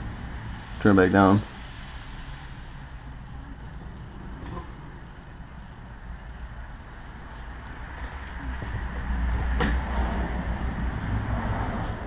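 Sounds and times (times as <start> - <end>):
compressed air hissing: 0.0 - 3.8
low steady hum: 0.0 - 11.1.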